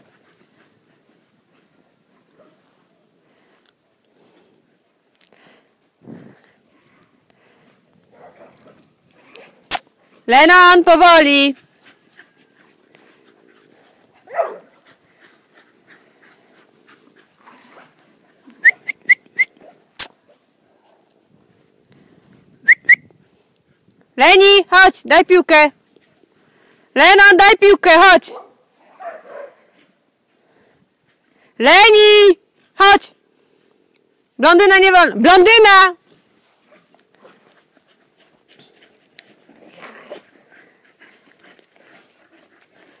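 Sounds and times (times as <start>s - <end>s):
dogs playing: 0.0s - 4.1s, 11.4s - 22.4s, 36.0s - 43.0s
dog yelp: 14.3s - 14.7s.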